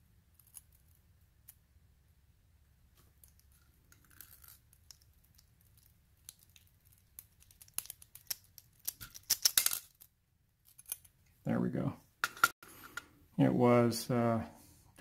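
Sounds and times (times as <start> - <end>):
small metal clicks of tools and pins: 7.4 - 11.1.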